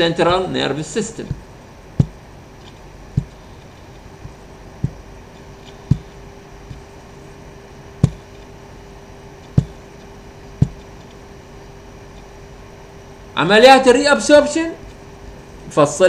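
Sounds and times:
faint steady hum: 0.0 - 16.0
sharp short knocks: 1.2 - 6.9, 8.0 - 8.5, 9.4 - 10.0, 10.6 - 11.2.

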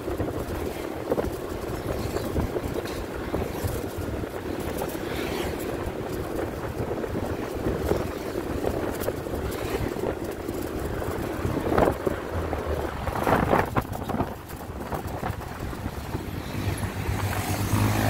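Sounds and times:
motorcycle engine hum: 0.0 - 18.0
wind rushing over microphone: 0.0 - 18.0.

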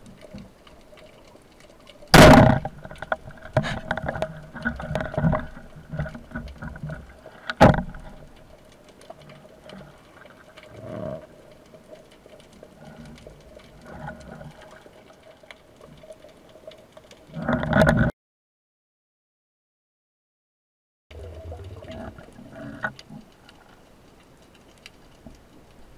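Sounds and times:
quiet water noise: 0.0 - 18.1, 21.1 - 25.9
speargun firing crack: 2.2 - 2.6.

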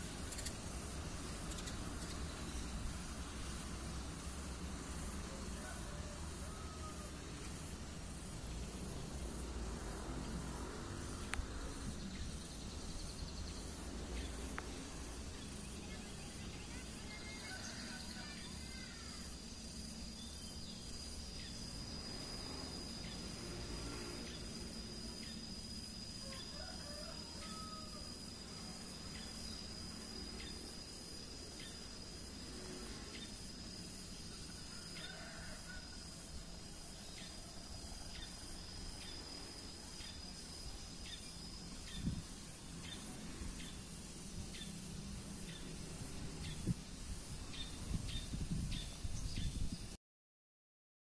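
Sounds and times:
high-pitched insect drone: 0.0 - 50.0
rooster crowing: 5.3 - 7.5, 17.4 - 18.8, 26.2 - 28.2, 34.5 - 36.3.

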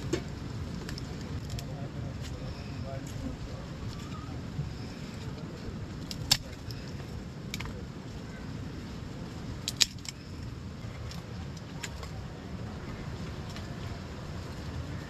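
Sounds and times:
low background rumble: 0.0 - 15.0
dry sticks clicking and knocking: 6.0 - 7.8, 9.6 - 10.3.

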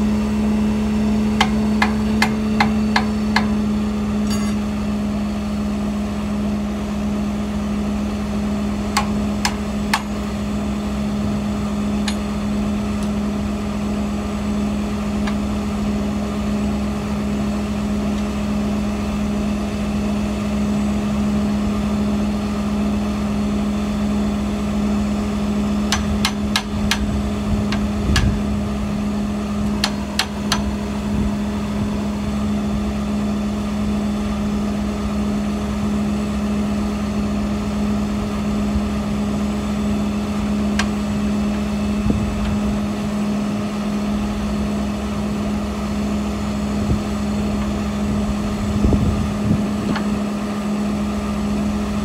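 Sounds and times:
heavy machine droning: 0.0 - 52.0
metal-on-metal clanks: 4.2 - 4.6.

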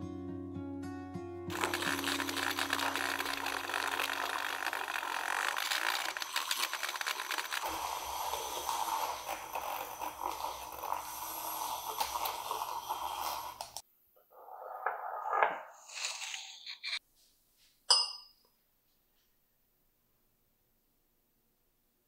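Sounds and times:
milk frother whirring: 1.5 - 13.8.

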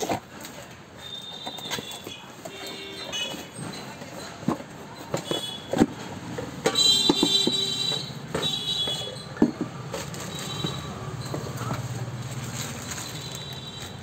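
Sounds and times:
metal jars knocking and clinking: 1.5 - 11.8.

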